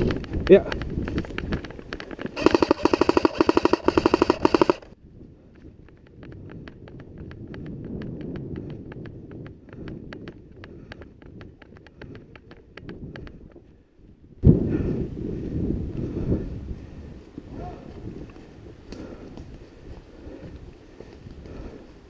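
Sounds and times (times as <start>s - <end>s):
airsoft rifle full-auto burst: 2.4s - 5.0s
light regular ticks: 6.0s - 13.6s.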